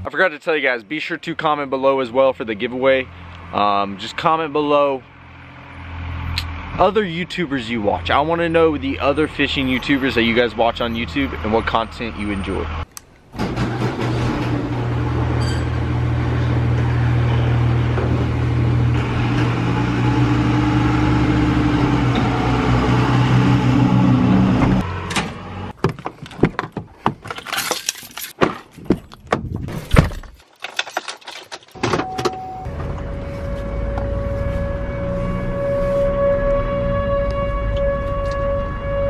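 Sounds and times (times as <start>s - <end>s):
garage door opener motor hum: 13.4s - 25.7s
horn-like tone: 32.0s - 39.0s.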